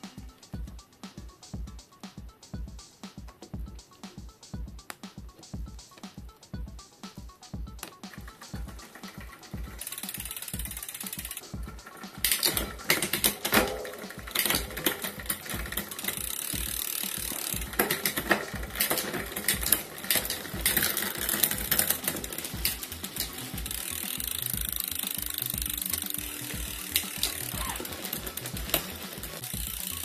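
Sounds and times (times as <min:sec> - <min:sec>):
bicycle chain clicking and ratcheting: 0:07.6 - 0:30.0.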